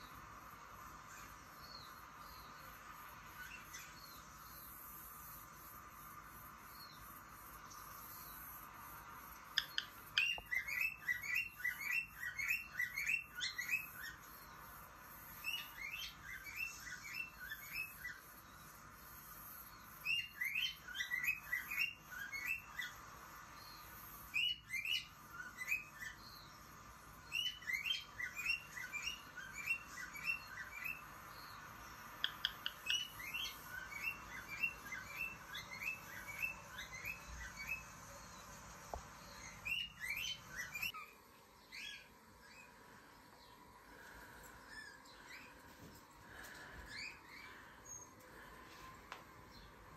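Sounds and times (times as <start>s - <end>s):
cockatiel chirping: 9.6s - 14.2s, 32.2s - 37.8s.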